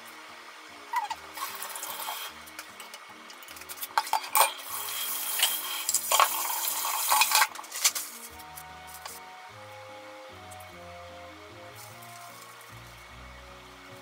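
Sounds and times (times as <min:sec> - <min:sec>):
soft background music: 0:00.0 - 0:14.0
plastic wrap and paper crinkling: 0:04.7 - 0:09.2, 0:11.8 - 0:13.0.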